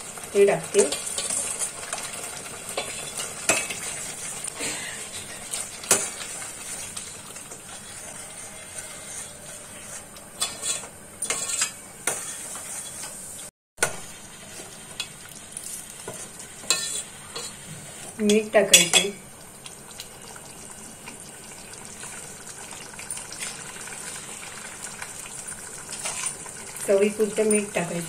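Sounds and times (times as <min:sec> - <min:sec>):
pot sizzling: 0:00.0 - 0:28.0
ladle scraping steel pot: 0:05.4 - 0:13.2, 0:16.1 - 0:18.2.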